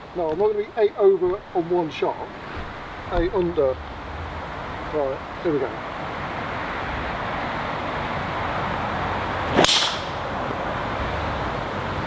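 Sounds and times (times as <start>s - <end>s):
golf club striking ball: 9.5s - 10.3s.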